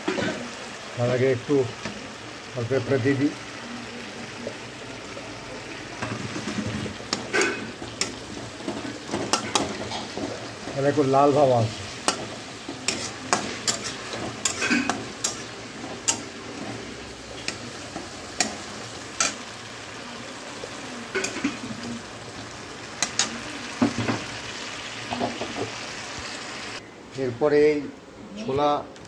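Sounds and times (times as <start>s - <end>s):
food sizzling in a pan: 0.0s - 26.8s
metal spatula scraping a pan: 6.0s - 19.4s.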